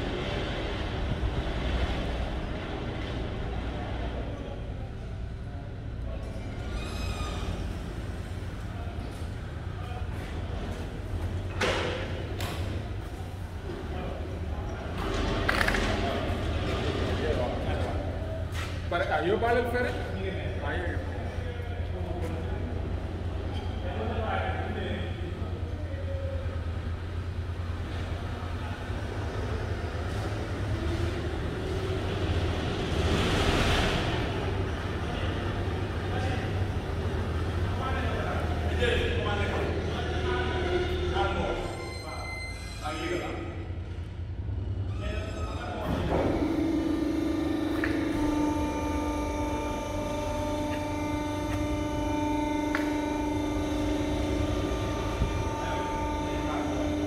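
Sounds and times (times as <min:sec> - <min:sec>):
lift platform drive humming: 0:45.6 - 0:57.0.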